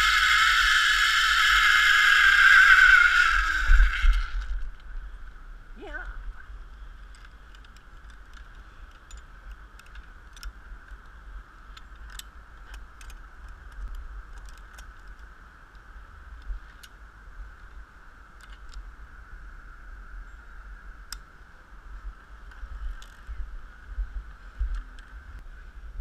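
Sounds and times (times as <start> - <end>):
high-pitched drone: 0.0 - 4.5
wind on microphone: 0.0 - 7.1, 15.0 - 26.0
metallic clinks of carabiners: 7.1 - 10.5.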